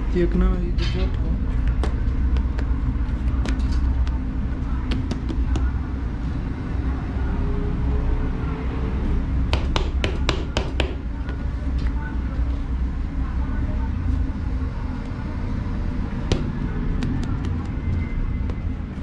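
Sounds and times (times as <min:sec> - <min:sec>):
hands slapping dough: 0:01.6 - 0:04.2, 0:04.8 - 0:05.8, 0:16.3 - 0:18.7.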